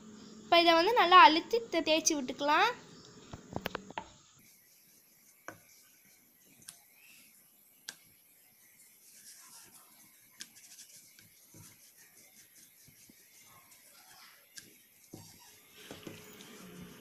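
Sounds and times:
rolling pin rolling over dough: 0:08.1 - 0:17.0.

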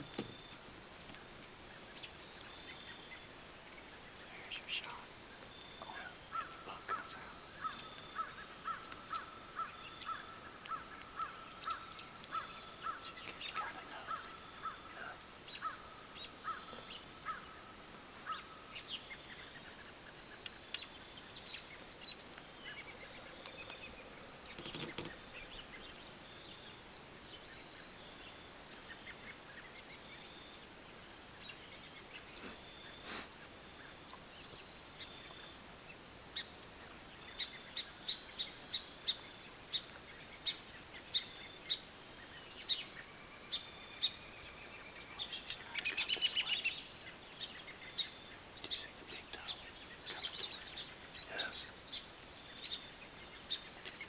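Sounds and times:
faint high bird chirps: 0:01.8 - 0:30.7, 0:36.4 - 0:54.0
sharp clicks: 0:24.4 - 0:25.2.

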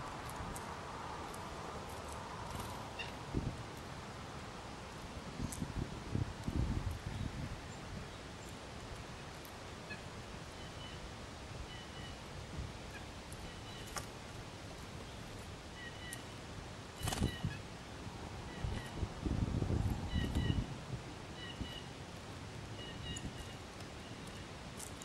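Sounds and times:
wind: 0:00.0 - 0:25.0
small birds calling: 0:11.7 - 0:14.1, 0:15.0 - 0:16.4, 0:17.0 - 0:17.7, 0:22.7 - 0:25.0.

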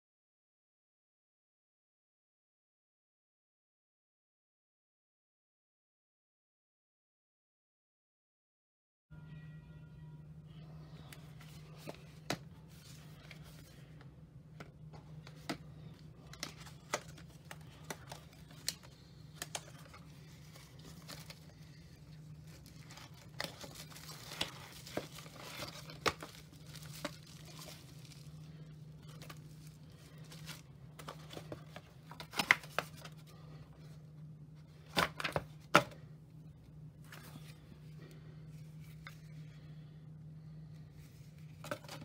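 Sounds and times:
steady low hum: 0:09.2 - 0:42.0
cardboard and paper rustling: 0:11.0 - 0:34.0, 0:34.6 - 0:36.0, 0:37.0 - 0:39.8, 0:40.7 - 0:42.0
plastic bag crinkling: 0:16.2 - 0:33.1.

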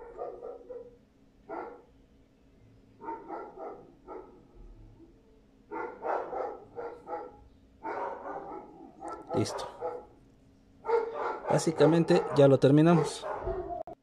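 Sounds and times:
dog barking: 0:00.0 - 0:01.9, 0:03.0 - 0:04.6, 0:05.7 - 0:10.2, 0:10.8 - 0:14.0.

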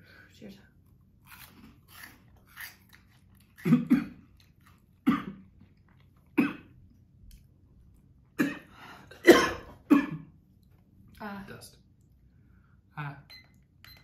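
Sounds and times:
person coughing: 0:03.6 - 0:04.2, 0:05.0 - 0:05.4, 0:06.4 - 0:06.7, 0:08.4 - 0:10.3.

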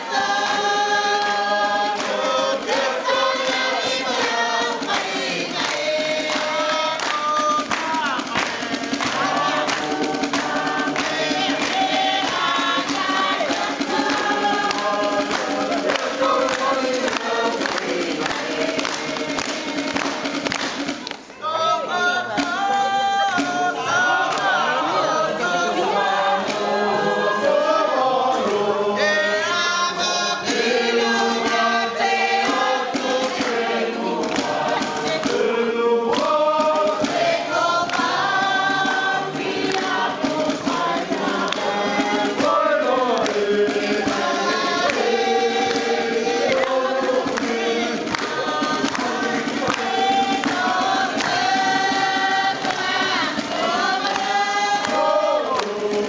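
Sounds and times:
group singing in chorus: 0:00.0 - 0:56.0.

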